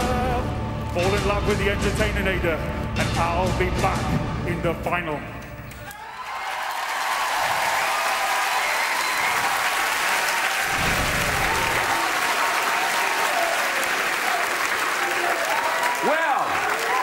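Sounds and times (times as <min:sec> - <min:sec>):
studio audience applauding: 0:05.9 - 0:17.0.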